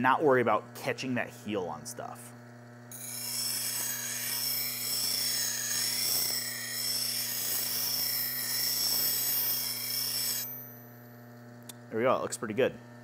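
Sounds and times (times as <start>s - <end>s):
bench grinder motor hum: 2.2s - 11.9s
steel grinding on wheel hiss: 3.0s - 10.6s.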